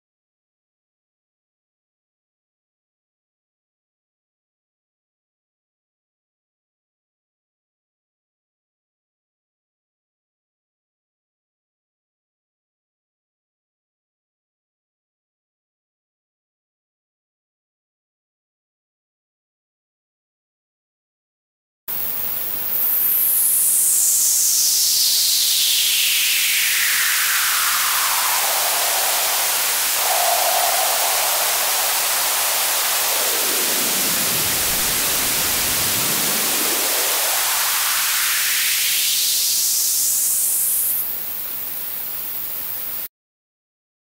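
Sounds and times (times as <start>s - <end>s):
filtered white noise hiss: 21.9s - 43.1s
resonant sliding whistle: 23.3s - 34.2s.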